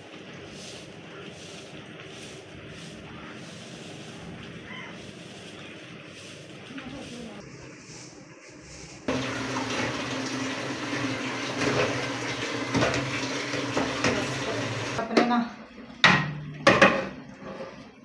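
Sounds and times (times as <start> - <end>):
pot being scrubbed: 0.0 - 15.0, 16.9 - 18.0
tap water running into sink: 9.1 - 15.0.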